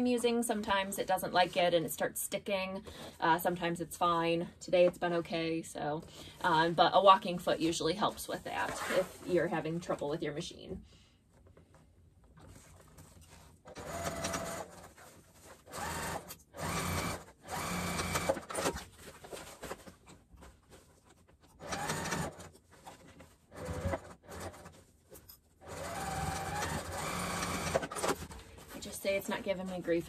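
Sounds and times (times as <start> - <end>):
sewing machine stitching: 13.7 - 18.8, 21.6 - 22.5, 23.5 - 24.8, 25.6 - 28.4.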